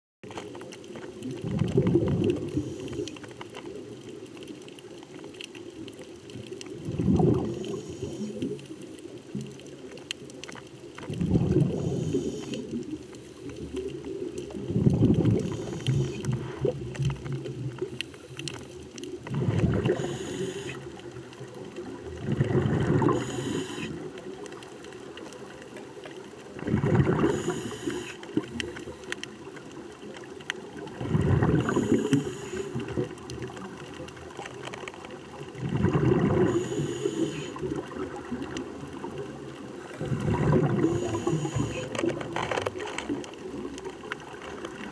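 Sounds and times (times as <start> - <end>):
exhaled bubbles rumbling: 0.2 - 44.9
steady underwater hiss: 0.3 - 44.9
regulator hiss: 7.4 - 8.6, 11.8 - 13.4, 15.4 - 16.6, 19.8 - 21.0, 23.0 - 24.1, 27.2 - 28.3, 31.6 - 33.0, 36.4 - 37.6, 40.7 - 42.0.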